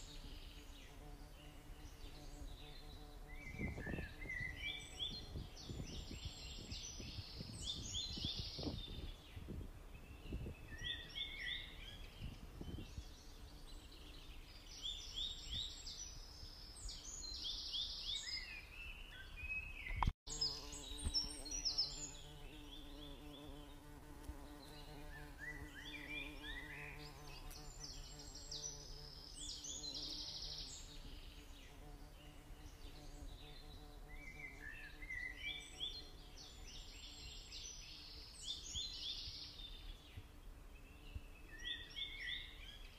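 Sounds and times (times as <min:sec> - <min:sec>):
songbird singing: 0:00.0 - 0:42.9.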